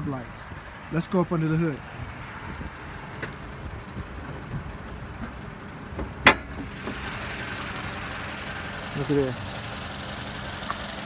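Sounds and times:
car hood latch click: 6.0 - 6.6.

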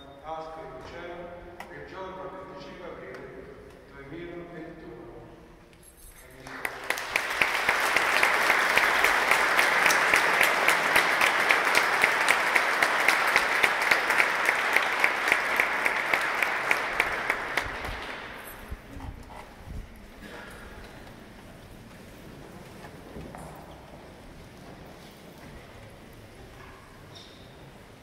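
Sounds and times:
congregation applauding: 6.2 - 18.8
hands clapping close by: 6.4 - 18.5.

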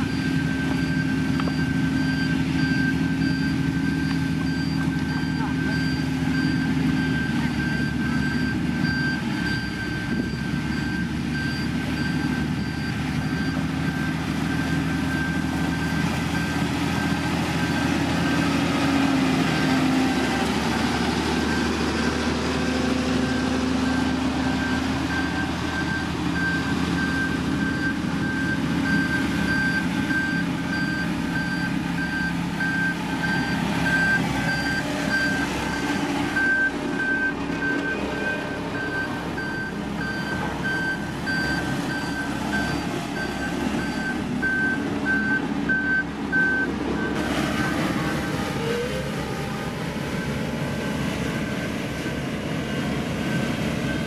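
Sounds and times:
reversing alarm beeping: 0.0 - 49.2, 53.3 - 54.0
heavy diesel engine working: 0.0 - 54.0.

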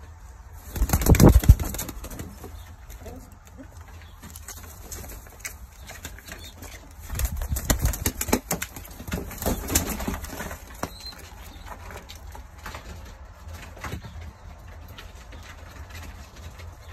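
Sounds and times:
pigeon wings flapping: 0.7 - 2.4, 7.0 - 11.0.

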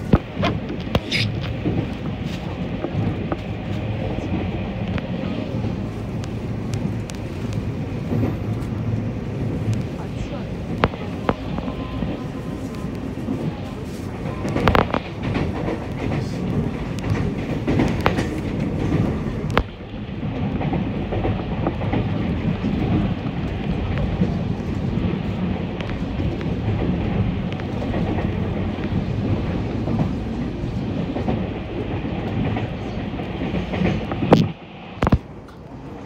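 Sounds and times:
train wheels rumbling on rails: 0.0 - 36.0
clicks over rail joints: 14.4 - 19.8.

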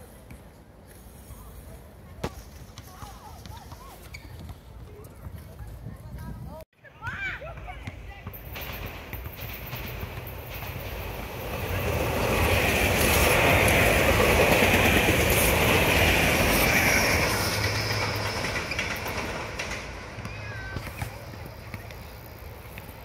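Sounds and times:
electric train passing on rails: 8.4 - 23.0.

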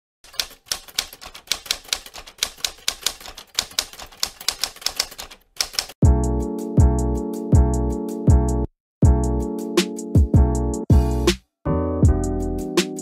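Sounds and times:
typewriter keys clacking: 0.2 - 6.0.

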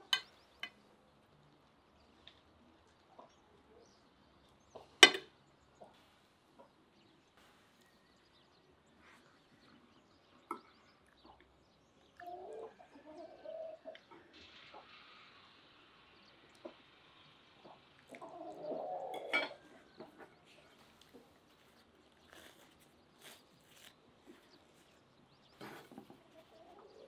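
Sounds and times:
cutlery clinking on ceramic plate: 5.0 - 5.3, 19.1 - 19.7.

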